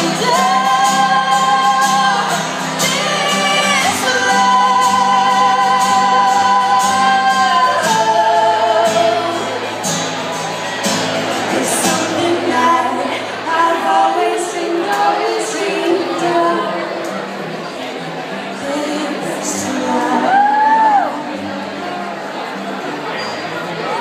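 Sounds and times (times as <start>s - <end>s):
women singing with vibrato: 0.0s - 9.9s, 11.5s - 17.2s, 18.5s - 21.5s.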